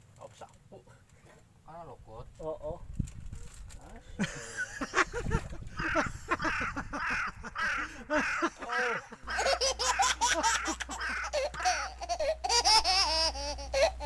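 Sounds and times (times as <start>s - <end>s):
steady low hum: 0.0s - 14.0s
excited voices with laughter-like cries: 4.2s - 14.0s.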